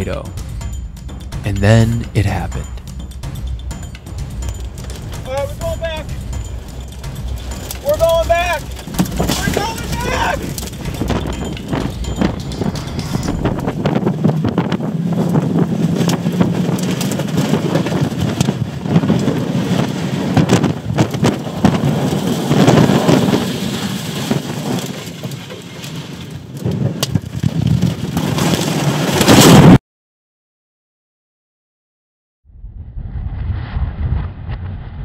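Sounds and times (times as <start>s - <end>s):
wind rushing: 0.0s - 24.4s, 32.5s - 35.0s
rain and debris hitting car: 4.2s - 29.6s.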